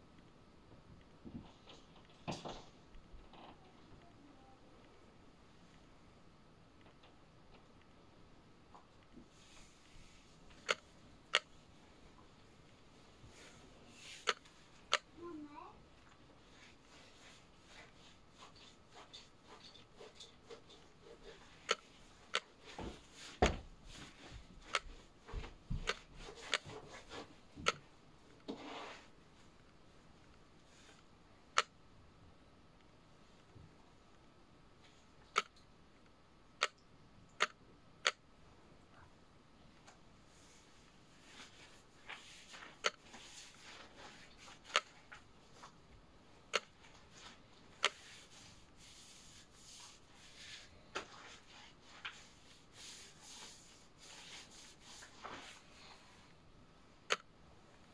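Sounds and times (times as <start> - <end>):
soft rustle: 8.7 - 31.2, 38.8 - 57.9
drawing tool scratching paper: 25.8 - 27.8, 41.2 - 45.1, 47.1 - 56.2
sharp clicks: 35.3 - 35.7.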